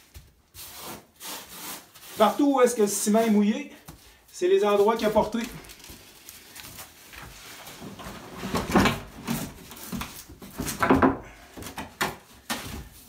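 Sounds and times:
plastic shower base knocking and scraping: 0:07.7 - 0:12.9.

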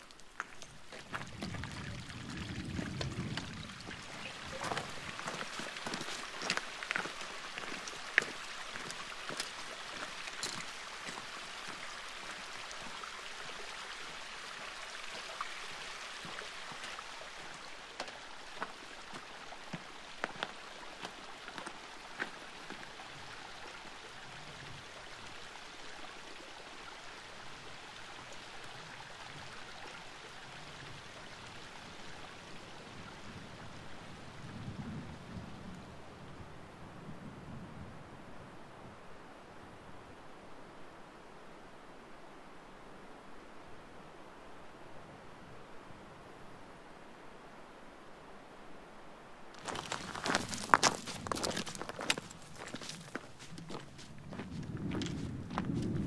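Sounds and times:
trekking poles and boots clicking on rock: 0:00.0 - 0:01.8, 0:02.9 - 0:11.2, 0:49.6 - 0:56.0
running water: 0:00.0 - 0:34.5.

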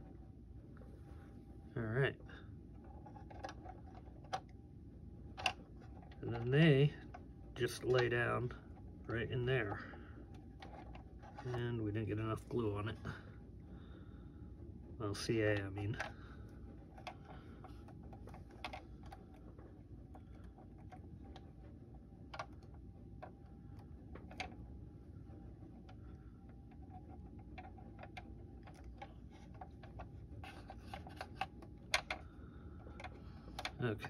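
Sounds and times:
faint steady hum: 0:00.0 - 0:34.0
plastic parts clicking and tapping: 0:02.8 - 0:04.5, 0:05.3 - 0:08.1, 0:09.1 - 0:11.8, 0:16.9 - 0:21.6, 0:22.2 - 0:24.7, 0:25.3 - 0:34.0.

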